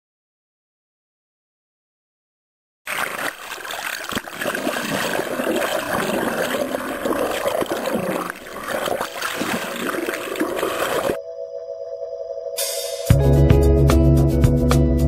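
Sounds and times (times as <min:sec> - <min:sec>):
water splashing and gurgling: 0:02.9 - 0:11.2.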